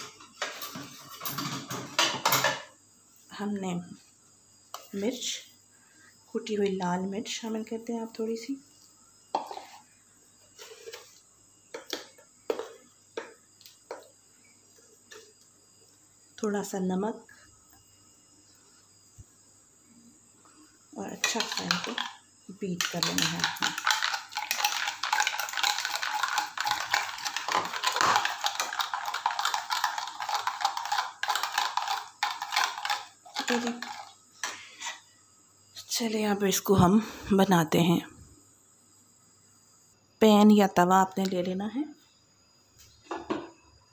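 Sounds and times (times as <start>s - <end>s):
kitchen utensils knocking and clinking: 0.0s - 2.7s, 21.2s - 22.2s.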